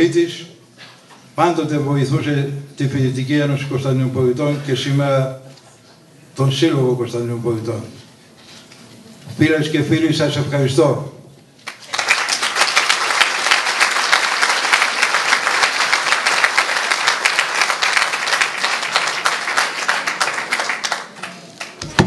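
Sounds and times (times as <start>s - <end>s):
audience applauding: 11.6s - 22.0s.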